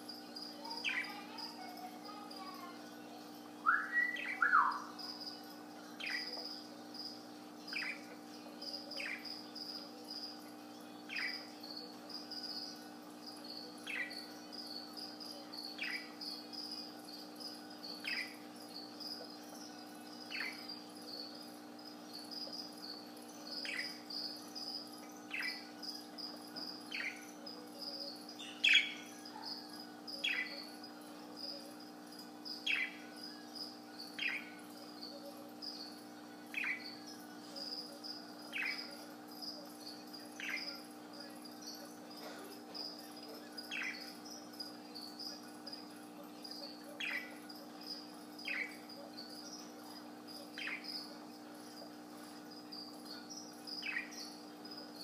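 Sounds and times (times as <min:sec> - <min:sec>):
budgerigar chirping: 0:25.3 - 0:25.7, 0:53.8 - 0:54.3.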